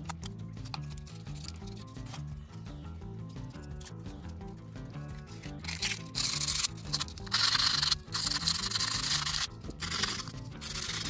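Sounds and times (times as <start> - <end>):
background music: 0.0 - 11.0
sandpaper scratching metal: 5.6 - 11.0.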